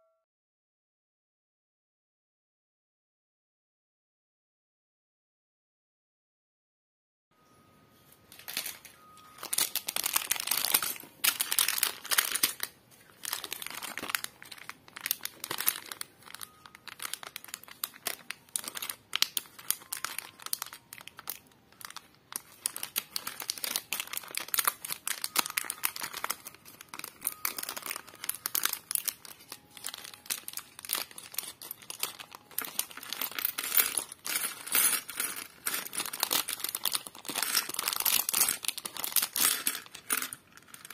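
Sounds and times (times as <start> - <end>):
plastic bag crinkling: 8.3 - 40.9
plastic bricks clicking: 29.8 - 40.9.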